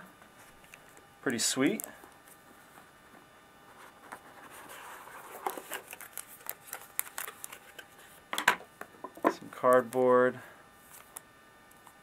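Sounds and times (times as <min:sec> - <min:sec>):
paper rustling: 0:03.8 - 0:08.1.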